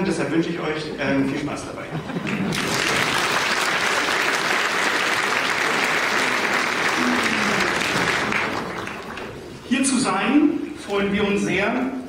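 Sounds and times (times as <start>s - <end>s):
audience applauding: 2.2s - 9.7s.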